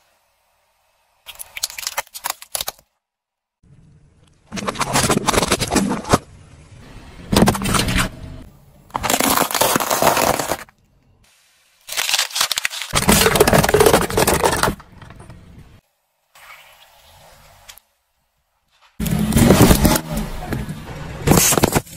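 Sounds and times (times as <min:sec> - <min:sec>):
tyre crushing plastic cups and cans: 0:04.6 - 0:06.2, 0:08.9 - 0:10.7, 0:12.0 - 0:15.5, 0:21.3 - 0:21.9.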